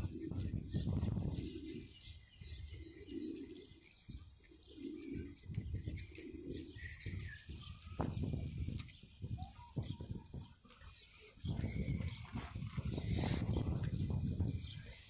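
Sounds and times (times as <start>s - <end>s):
pigeon cooing: 0.0s - 15.0s.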